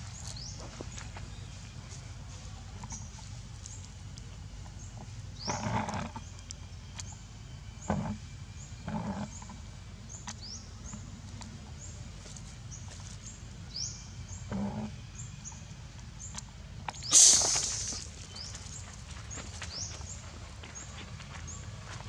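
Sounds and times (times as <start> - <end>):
scuffing noises: 17.1 - 22.0.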